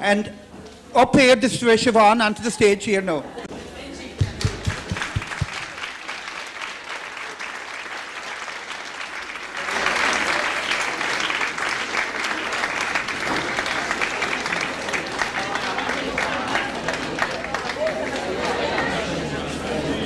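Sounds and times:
audience applauding: 4.2 - 19.4.

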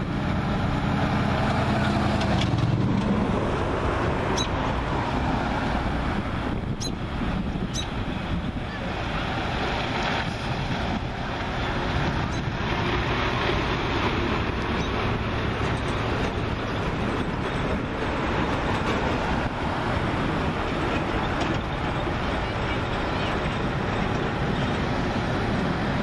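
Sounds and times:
wind buffeting microphone: 0.0 - 26.0.

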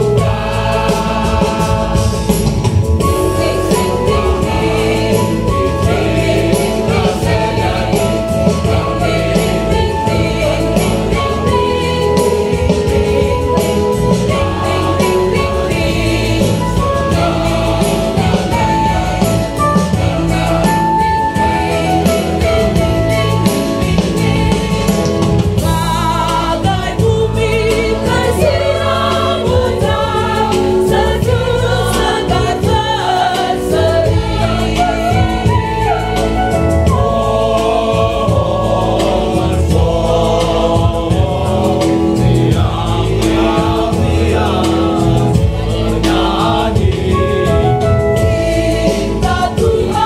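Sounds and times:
choir singing a hymn: 0.0 - 50.0.

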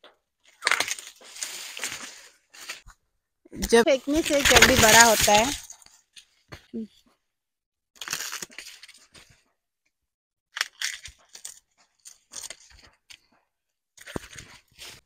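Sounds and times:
dry leaves rustling and crackling: 4.1 - 5.6.

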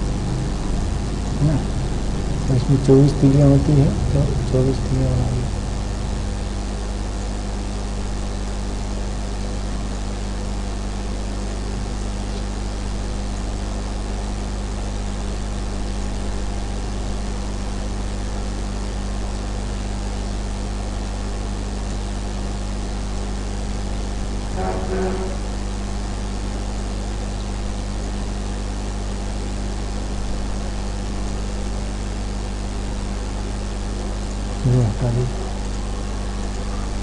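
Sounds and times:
low hum: 0.0 - 18.6, 23.2 - 32.4.

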